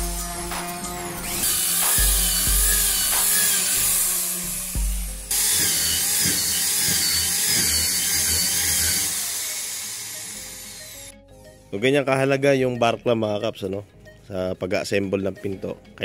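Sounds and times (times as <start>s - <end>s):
electric drill boring into wood: 1.2s - 11.1s.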